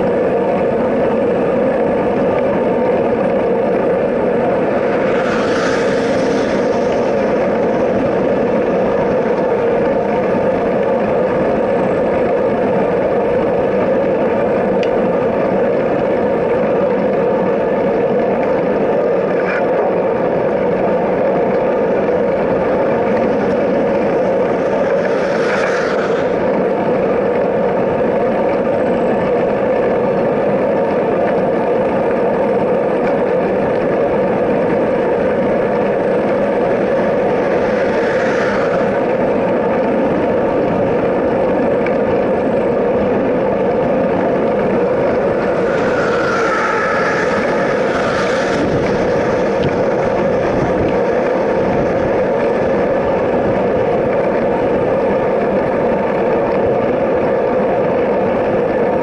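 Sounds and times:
wind and road rushing: 0.0s - 59.0s
vehicle passing: 44.1s - 51.5s.

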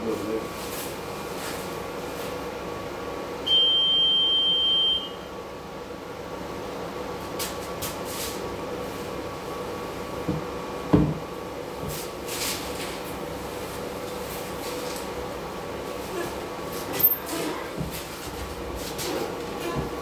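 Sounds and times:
train door warning beep: 3.4s - 5.3s.

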